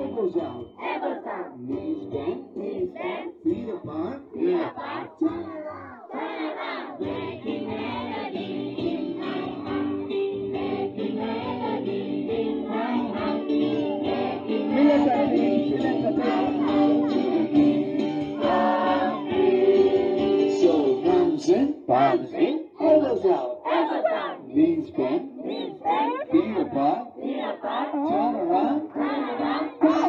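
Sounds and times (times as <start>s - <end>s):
young voices singing together: 0.0s - 30.0s
short shouted phrases: 4.5s - 6.2s
lively music backing: 7.0s - 21.8s.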